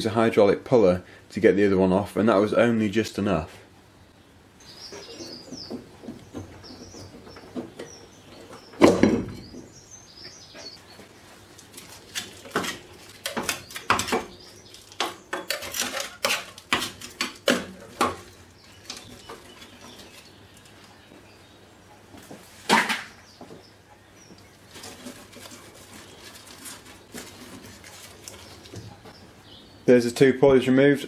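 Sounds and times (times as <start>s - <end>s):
birds chirping faintly: 0.0s - 31.0s
scrapes and knocks on metal: 12.1s - 20.1s.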